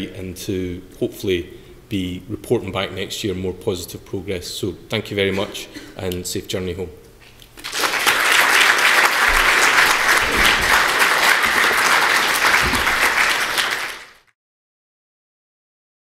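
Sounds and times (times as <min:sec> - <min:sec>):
audience applauding: 0:07.6 - 0:14.3.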